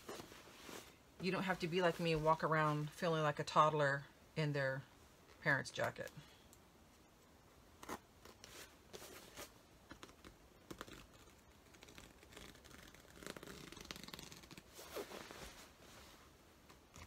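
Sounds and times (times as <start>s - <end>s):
fabric rustling: 0.0s - 3.1s, 7.8s - 17.0s.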